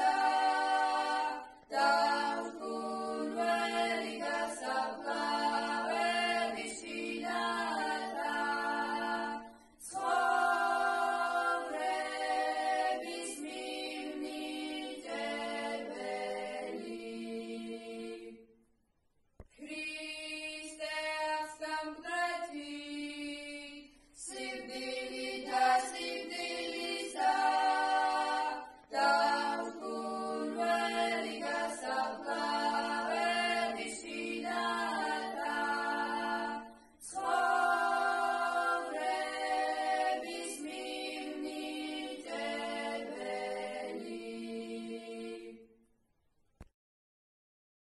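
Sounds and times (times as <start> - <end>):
girls singing a cappella hymn: 0.0 - 18.5, 19.5 - 45.8.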